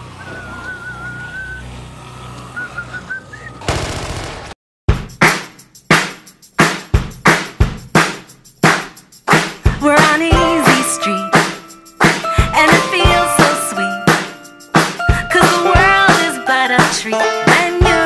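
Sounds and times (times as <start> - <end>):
whistled tune: 0.2 - 1.7, 2.5 - 3.6
assault rifle automatic fire: 3.6 - 4.6
loud rifle shots: 3.6 - 4.6.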